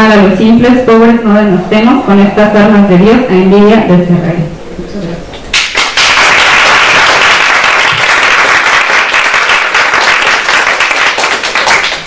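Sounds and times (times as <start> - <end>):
audience applauding: 5.5 - 12.0.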